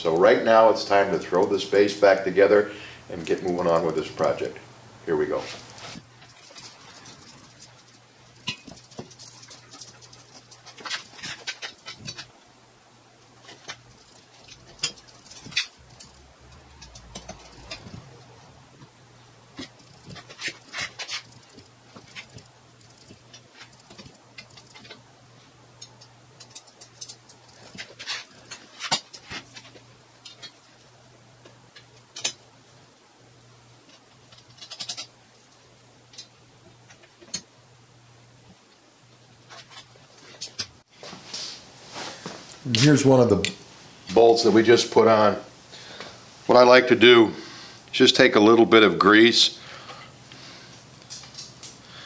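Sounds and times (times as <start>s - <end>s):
low steady hum: 0.0s - 52.0s
metal parts clicking and knocking: 5.6s - 12.4s, 13.4s - 18.4s, 19.5s - 25.1s, 25.8s - 30.9s, 31.7s - 32.4s, 33.8s - 37.5s
tools clinking on cast iron: 8.4s - 12.3s, 13.5s - 18.0s.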